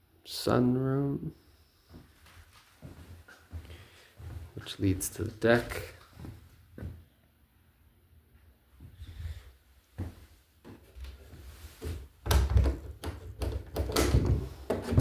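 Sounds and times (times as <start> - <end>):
door knocks and thuds: 12.3 - 15.0.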